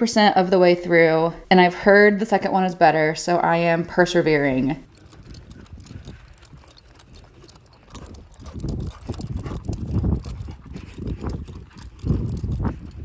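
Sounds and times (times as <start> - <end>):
clog footsteps on concrete: 4.8 - 13.0.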